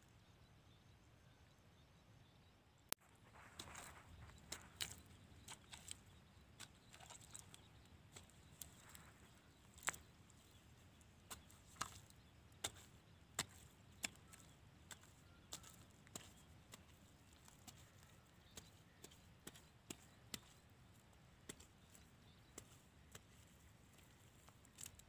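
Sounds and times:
stick digging into damp mud: 3.3 - 10.6, 11.2 - 20.6.

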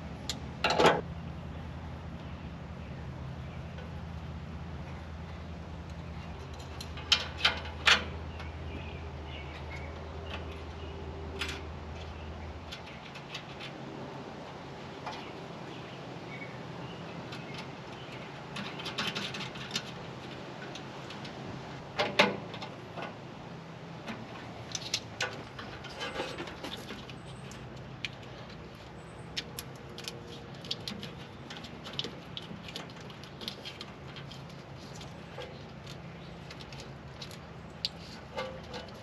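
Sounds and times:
wires clicking and rattling: 5.9 - 8.2, 24.0 - 39.0.

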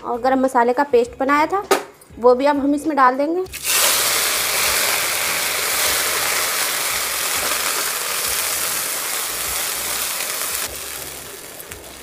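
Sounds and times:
paste sizzling in hot oil: 3.5 - 12.0.

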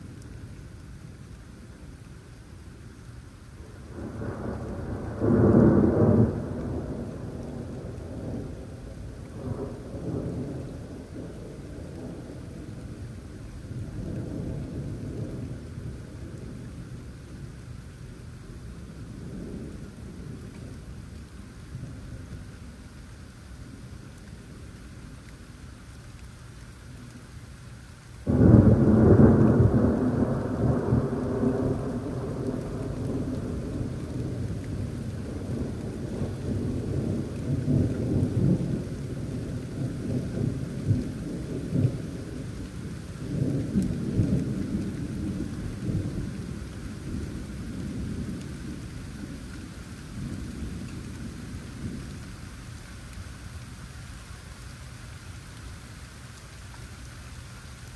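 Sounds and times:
steady rain: 0.0 - 57.9
thunder clap rumbling: 3.9 - 13.0, 28.2 - 52.3.

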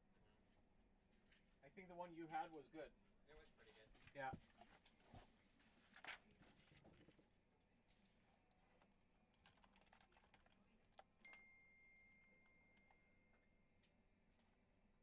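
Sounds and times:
faint keyboard typing: 6.0 - 14.7
high ringing tone: 11.2 - 13.7.

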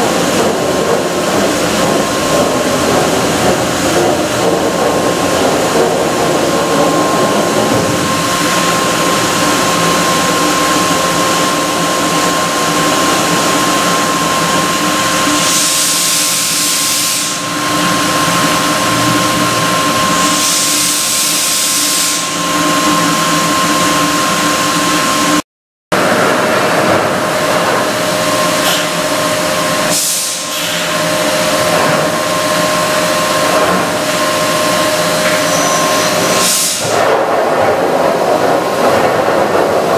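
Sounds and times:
machine mechanical hum with whine: 0.0 - 25.4, 26.0 - 39.9
air hiss bursts: 36.4 - 37.1.

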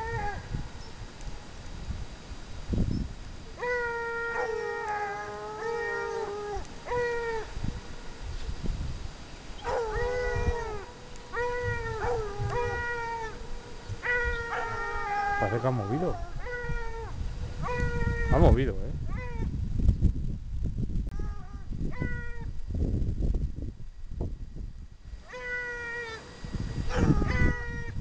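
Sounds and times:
hounds baying: 9.6 - 16.8.

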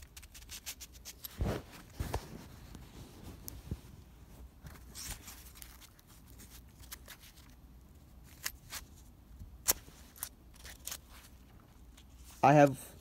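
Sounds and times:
cloth rustling against microphone: 0.0 - 7.6.

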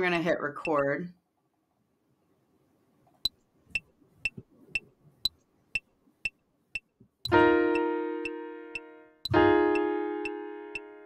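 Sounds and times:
metronome clicking: 5.2 - 10.9
piano chord ringing: 7.3 - 11.0.

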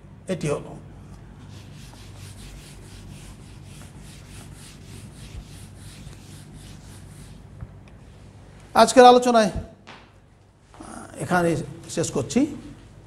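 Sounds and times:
eraser wiping a whiteboard: 1.3 - 7.6.

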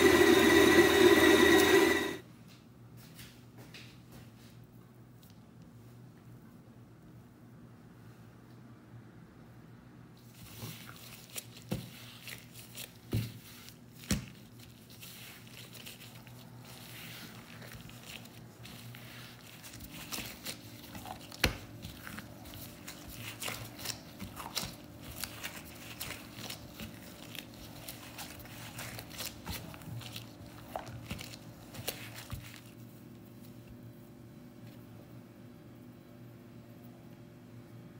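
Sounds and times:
dough squishing: 0.0 - 2.2, 10.2 - 35.1
plastic gloves crinkling: 10.2 - 33.7.

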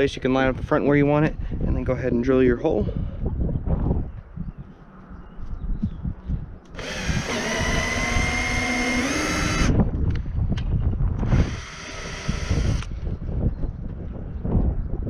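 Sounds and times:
power drill whining: 6.7 - 9.8, 11.2 - 13.1.

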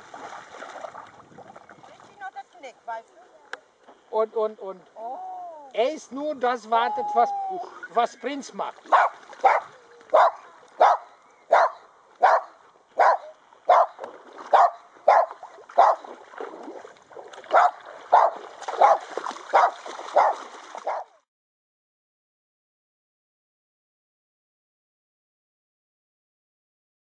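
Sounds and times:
dog barking: 8.9 - 16.1, 17.5 - 21.1.

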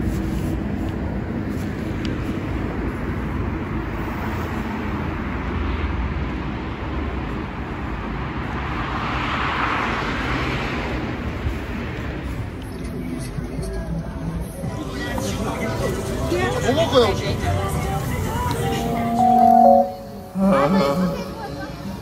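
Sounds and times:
rumble of street traffic: 0.0 - 22.0.

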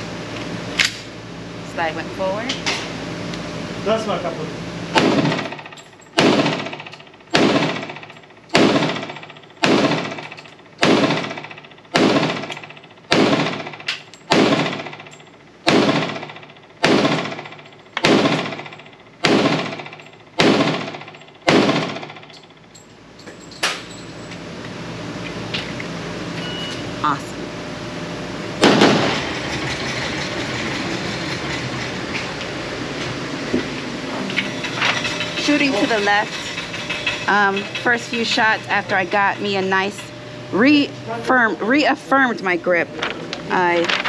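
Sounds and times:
pistol shots: 4.9 - 22.3, 28.6 - 29.2.

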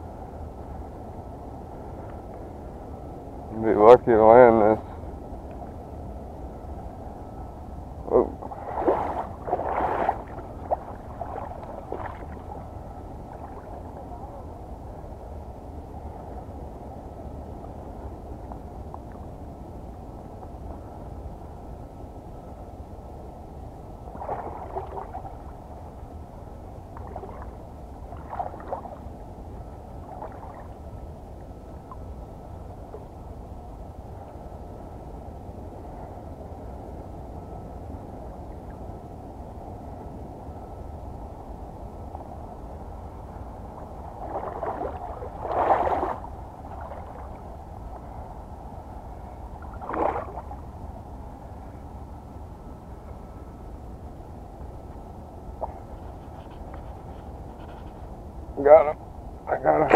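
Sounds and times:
steady low rumble: 0.0 - 59.9
wind and water wash: 0.0 - 59.9
water splashing: 8.4 - 12.6, 24.1 - 25.4, 27.0 - 29.0, 44.2 - 47.4, 49.6 - 50.6.

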